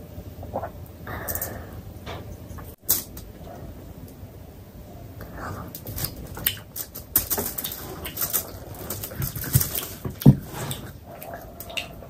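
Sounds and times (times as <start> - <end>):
wet chewing mouth clicks and smacks: 7.6 - 12.0.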